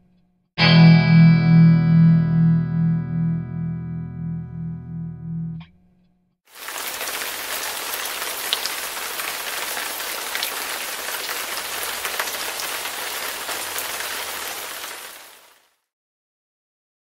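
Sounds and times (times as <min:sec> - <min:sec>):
guitar music: 0:00.6 - 0:05.7.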